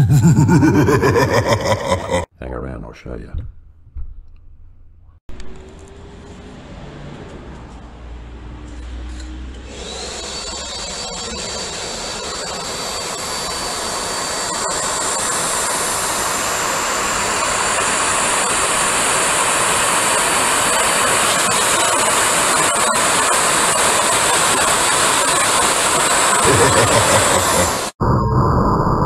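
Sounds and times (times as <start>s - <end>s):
vacuum cleaner running: 9.7s - 28.0s.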